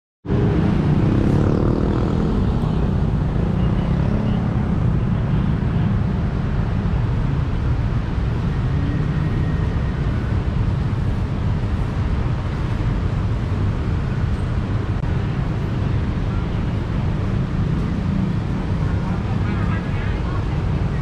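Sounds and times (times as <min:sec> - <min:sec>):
low rumble of traffic: 0:00.2 - 0:21.0
vehicle passing: 0:00.3 - 0:04.8.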